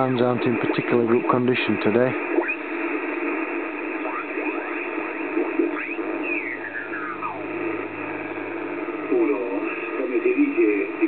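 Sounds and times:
radio band noise hiss: 0:00.0 - 0:11.0
garbled radio signals sliding in pitch: 0:05.6 - 0:08.4.

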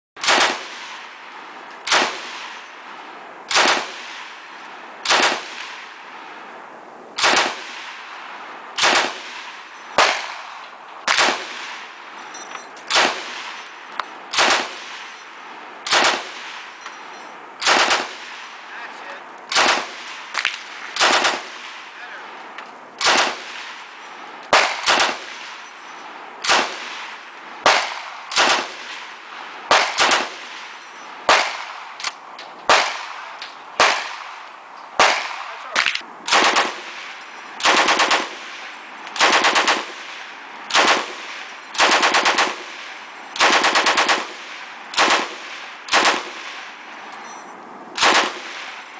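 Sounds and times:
machine gun bursts: 0:14.3 - 0:15.2, 0:15.8 - 0:16.6, 0:17.6 - 0:18.2, 0:19.5 - 0:20.4, 0:21.0 - 0:21.6, 0:24.6 - 0:25.8, 0:29.7 - 0:30.4, 0:36.3 - 0:46.7, 0:48.0 - 0:48.9.

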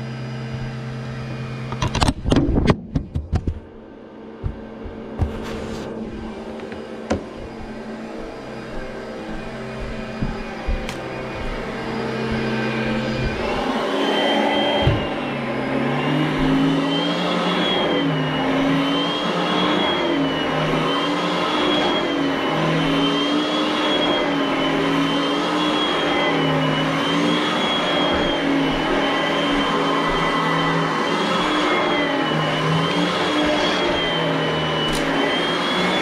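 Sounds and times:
vacuum cleaner on carpet: 0:00.0 - 0:36.0
knock: 0:04.4 - 0:05.4.

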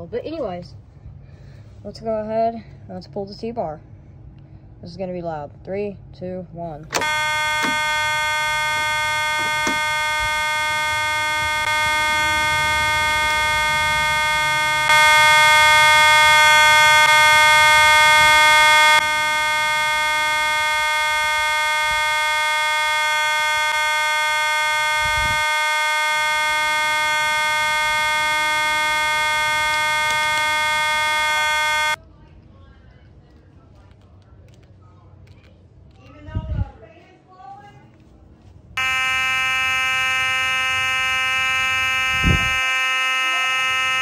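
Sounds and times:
fire alarm horns: 0:06.9 - 0:32.0, 0:38.8 - 0:44.0.

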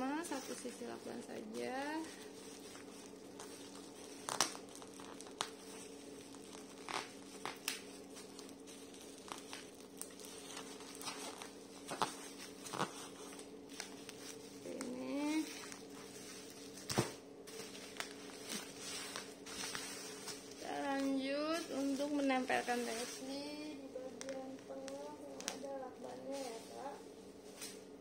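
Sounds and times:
bubble wrap crinkling: 0:00.0 - 0:28.0
faint steady hum: 0:00.0 - 0:28.0.

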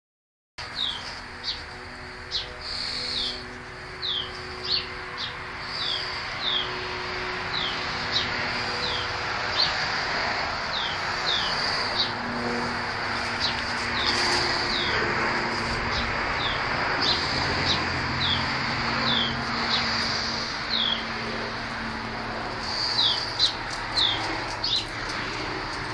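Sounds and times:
bird chirping: 0:00.7 - 0:01.7, 0:02.3 - 0:06.7, 0:19.1 - 0:21.1, 0:22.7 - 0:24.9.

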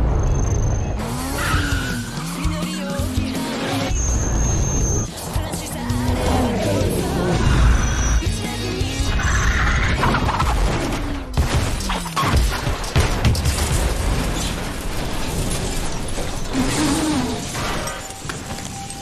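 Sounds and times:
car crash impacts and scraping: 0:10.1 - 0:18.5.

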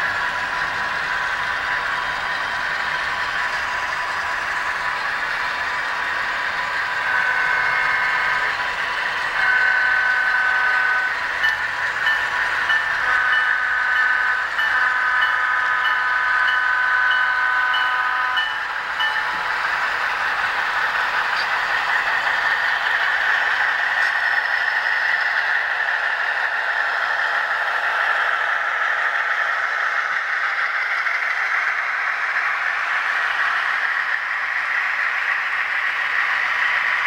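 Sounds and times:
model train cars rattling: 0:00.0 - 0:37.0
locomotive bell ringing: 0:06.8 - 0:19.6
model locomotive horn: 0:09.4 - 0:11.2, 0:13.1 - 0:15.3, 0:16.5 - 0:18.4.

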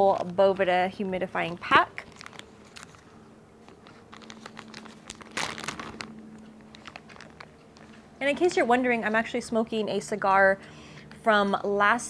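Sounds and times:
plastic packaging crinkling: 0:00.0 - 0:08.0.

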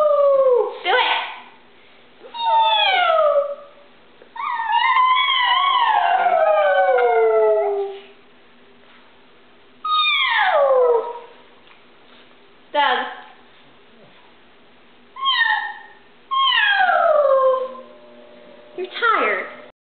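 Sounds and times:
dog howling: 0:00.0 - 0:00.7, 0:02.3 - 0:03.7, 0:04.4 - 0:08.1, 0:09.9 - 0:11.4, 0:15.2 - 0:17.9
woman howling: 0:00.0 - 0:00.8, 0:02.3 - 0:03.7, 0:04.4 - 0:08.0, 0:09.9 - 0:11.3, 0:15.2 - 0:17.9.

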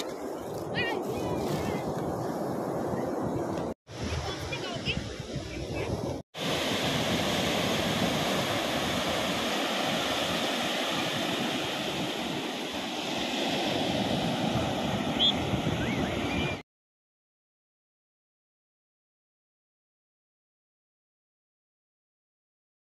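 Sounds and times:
surf washing up a beach: 0:00.0 - 0:16.6.

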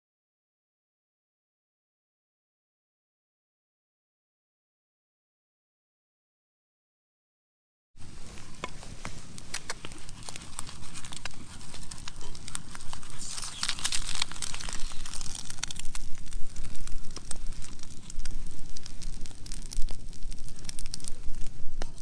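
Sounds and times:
campfire crackling and popping: 0:08.0 - 0:22.0.

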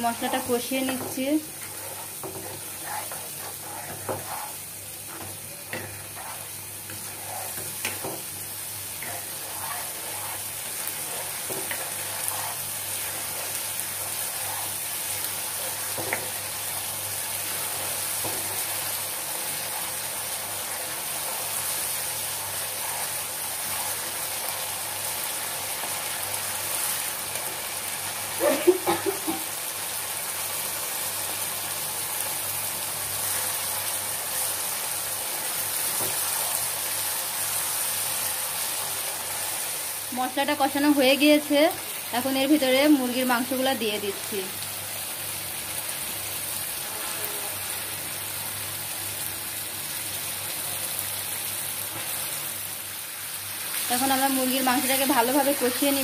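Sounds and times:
spatula scraping pan: 0:00.0 - 0:16.5, 0:22.2 - 0:24.4
paste sizzling in oil: 0:00.0 - 0:56.0.

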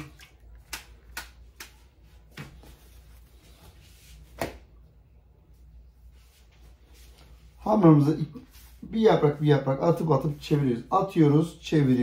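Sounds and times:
dough sheets tapping and rustling: 0:00.0 - 0:03.0.

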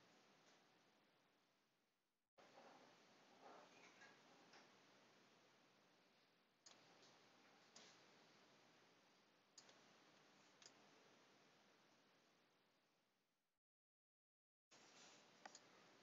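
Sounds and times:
faint room hiss: 0:00.0 - 0:13.2, 0:14.7 - 0:16.0
soft clicks: 0:06.6 - 0:08.1, 0:09.6 - 0:11.0, 0:15.4 - 0:15.8.

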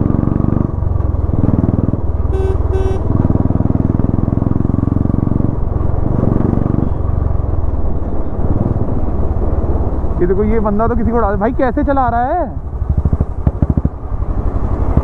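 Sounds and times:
motorcycle exhaust thumping: 0:00.9 - 0:04.8, 0:12.6 - 0:15.0
vehicle horn beeps: 0:02.3 - 0:03.2.

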